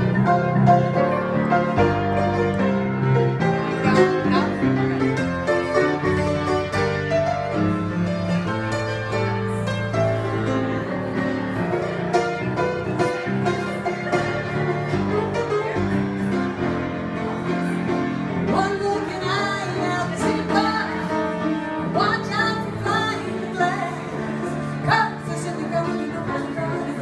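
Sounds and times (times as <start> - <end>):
piano accompaniment: 0.0 - 27.0
woman singing: 18.5 - 27.0.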